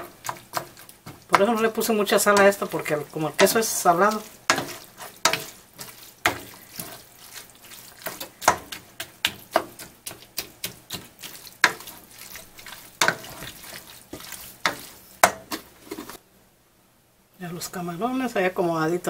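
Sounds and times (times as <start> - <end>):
wet squelching of stirred pasta: 0.0 - 16.2.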